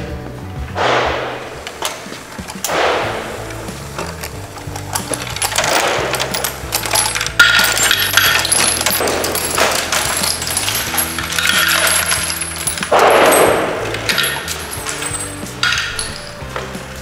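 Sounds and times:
brass casings clinking on concrete: 4.7 - 16.8.

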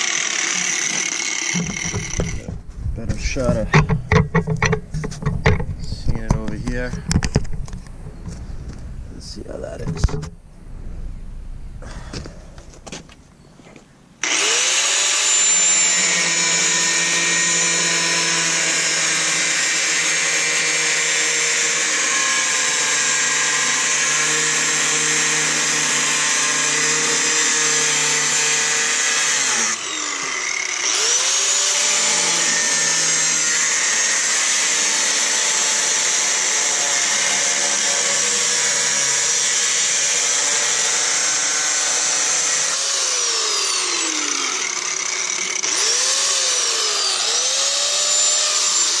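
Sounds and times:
angle grinder cutting sheet metal: 0.0 - 2.6, 14.2 - 49.0.

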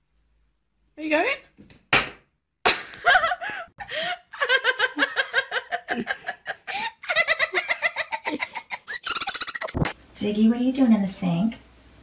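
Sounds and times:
laughter: 2.7 - 9.8.

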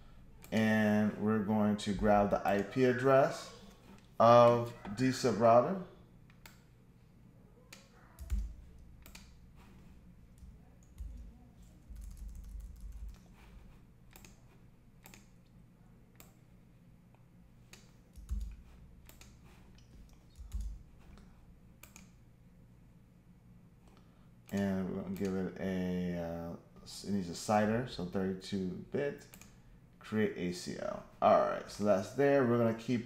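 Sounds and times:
faint steady hum: 0.0 - 33.0
mouse clicks: 7.7 - 9.4, 19.0 - 21.2
keyboard key presses: 7.8 - 9.4.

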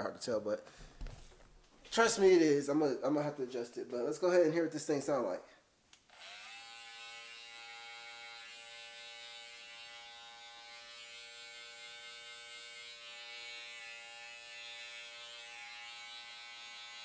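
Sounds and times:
hair trimmer buzzing: 6.1 - 17.0.

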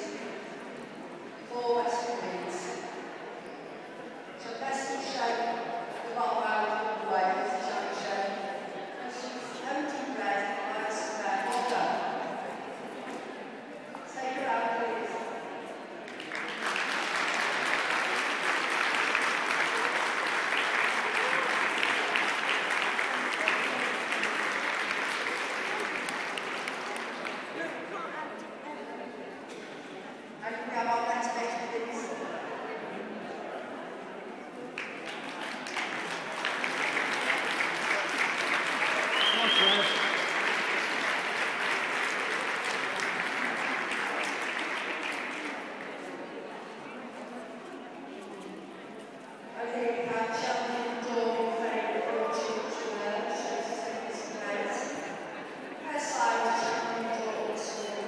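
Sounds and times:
spectators clapping: 16.0 - 27.7, 34.8 - 46.2
audience applauding: 16.1 - 27.6, 34.8 - 46.0.

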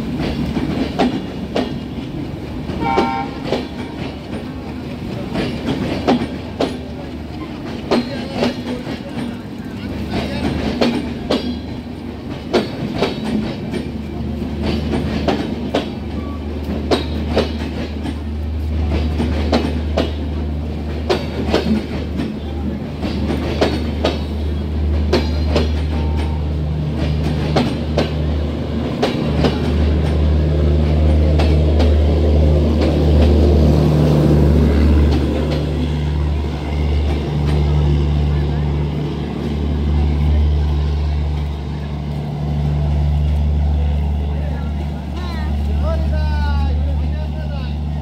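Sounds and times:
train wheels clacking on rail joints: 0.0 - 47.8.

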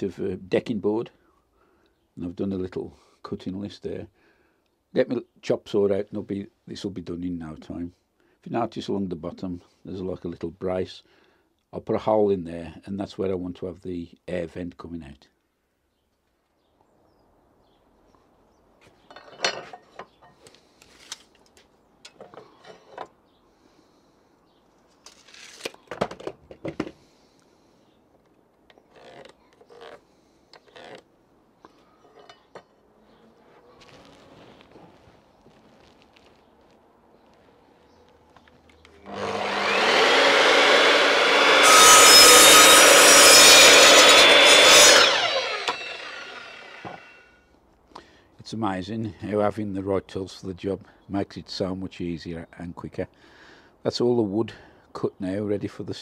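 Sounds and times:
wooden boards knocking and scraping: 25.9 - 27.0
mitre saw motor whine: 39.0 - 47.3
saw blade cutting board: 39.0 - 47.3.

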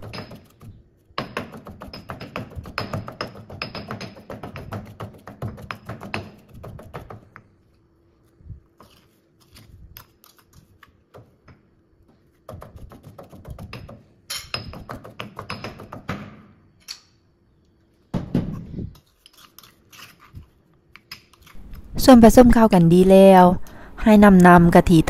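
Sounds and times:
stone pestle pounding in mortar: 0.0 - 7.3, 12.5 - 16.2.

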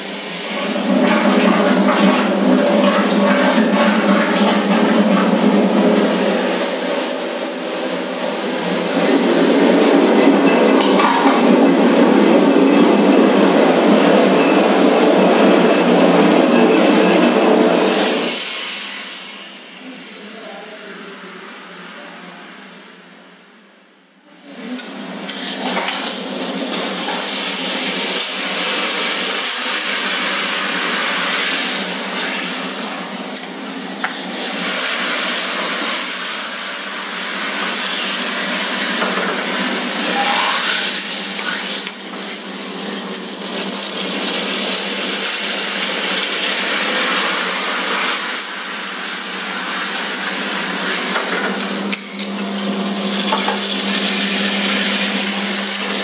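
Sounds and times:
bakery machinery whirring: 0.0 - 56.0
brief rising squeak: 40.0 - 41.0.

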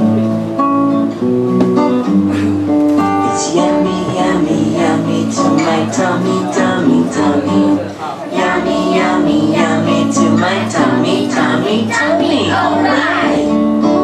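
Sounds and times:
strummed acoustic guitar: 0.0 - 14.0
children singing together: 3.3 - 13.6.

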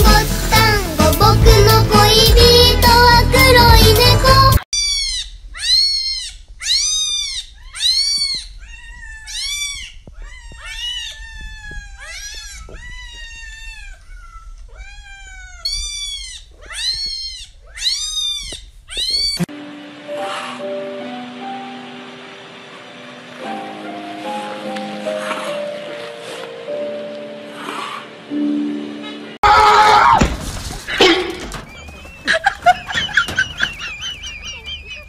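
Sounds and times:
cat meowing: 4.8 - 19.5.

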